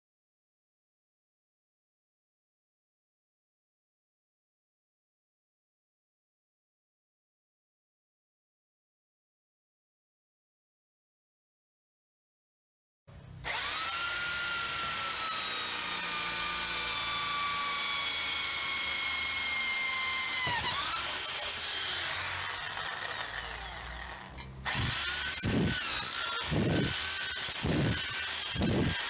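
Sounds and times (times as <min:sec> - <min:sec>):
electric drill whining: 0:13.4 - 0:29.0.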